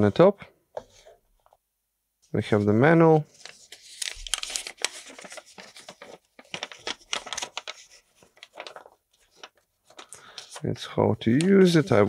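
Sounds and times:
paper rustling and crinkling: 0:02.4 - 0:10.7.

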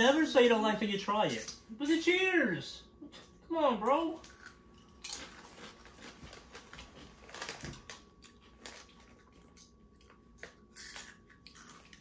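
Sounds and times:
chips crunching while chewed: 0:04.2 - 0:12.0.

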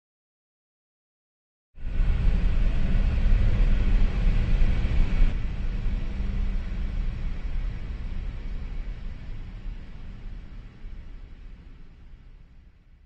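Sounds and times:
deep rumbling: 0:01.8 - 0:12.2.

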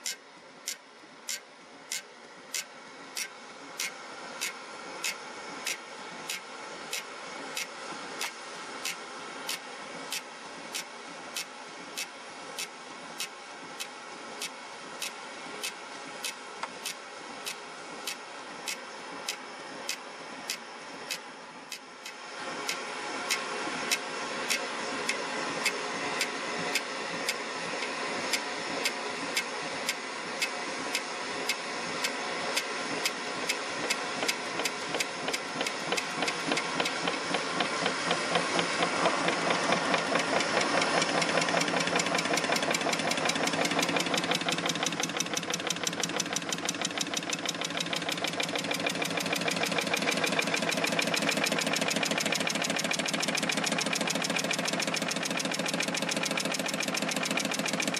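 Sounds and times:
steady mechanical clatter: 0:00.0 - 0:57.9
engine linkage knocking: 0:33.0 - 0:57.9.

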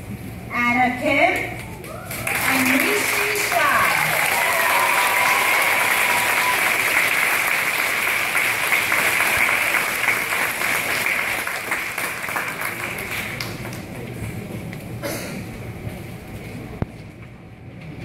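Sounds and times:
audience applauding: 0:01.8 - 0:14.2.

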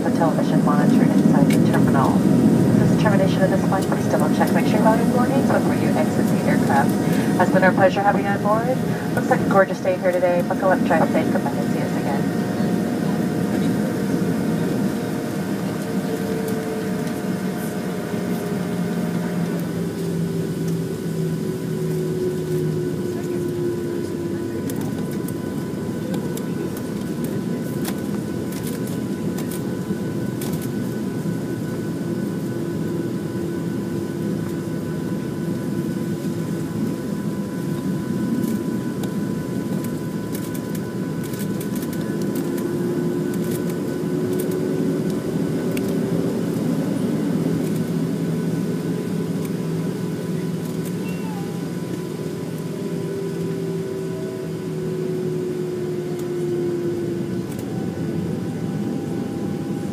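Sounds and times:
jet engines idling rumble: 0:00.0 - 0:59.9
humming tone: 0:35.0 - 0:59.9.

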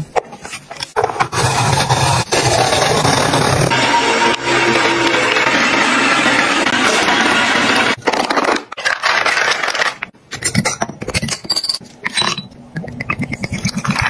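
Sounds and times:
household items scraping and rustling: 0:07.9 - 0:11.3.

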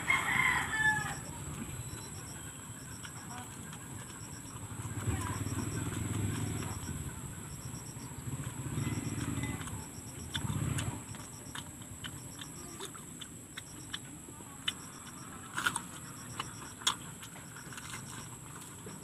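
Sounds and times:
crunchy chewing: 0:00.0 - 0:19.0
insect chirping: 0:00.0 - 0:19.0
wet mouth clicks: 0:08.8 - 0:19.0.

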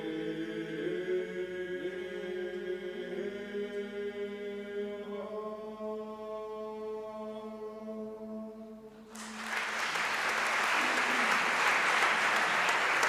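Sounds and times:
male choir holding a chord: 0:00.0 - 0:07.5
audience applause: 0:09.1 - 0:13.0.

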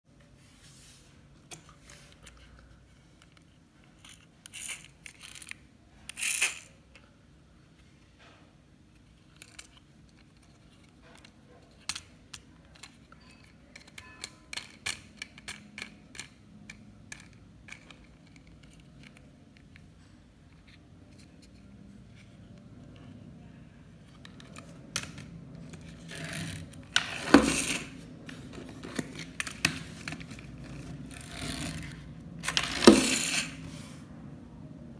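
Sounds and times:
plastic toy clicks and rattles: 0:04.0 - 0:06.7, 0:09.2 - 0:19.8.

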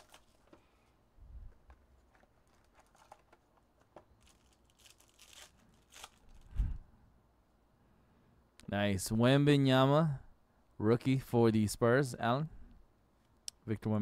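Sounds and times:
plastic wrapping rustling and tearing: 0:00.0 - 0:00.7, 0:01.5 - 0:06.6.

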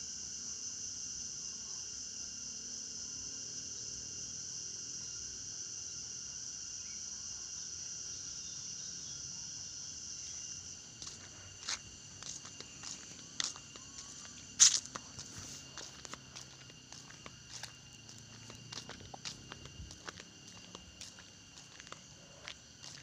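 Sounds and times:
crickets chirping: 0:00.0 - 0:23.0
footsteps on concrete: 0:11.0 - 0:23.0.

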